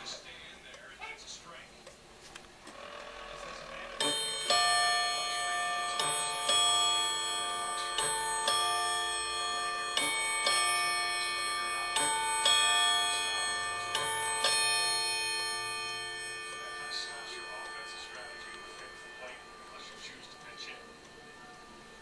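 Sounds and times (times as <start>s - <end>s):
clock gong strike: 3.9s - 22.0s.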